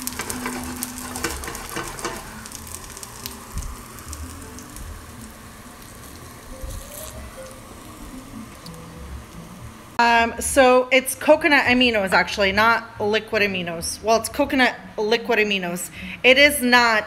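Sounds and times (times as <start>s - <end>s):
plantain slices sizzling in oil: 0.0s - 10.6s.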